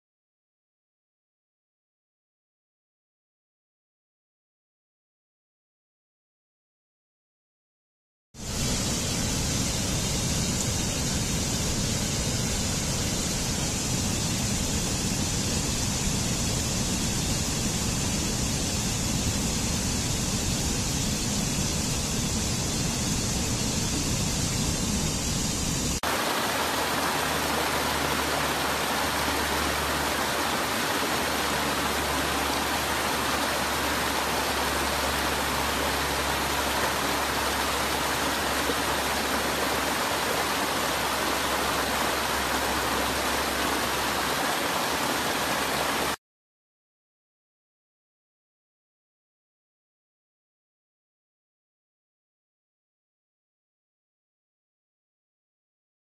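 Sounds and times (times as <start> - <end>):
stream rushing over rocks: 26.0 - 46.2.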